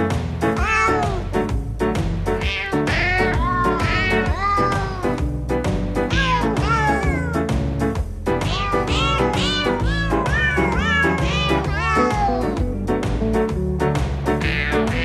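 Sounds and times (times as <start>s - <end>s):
instrumental backing music: 0.0s - 15.0s
cat meows set to melody: 0.5s - 1.4s, 2.3s - 5.2s, 6.0s - 7.5s, 8.3s - 12.6s, 14.4s - 15.0s.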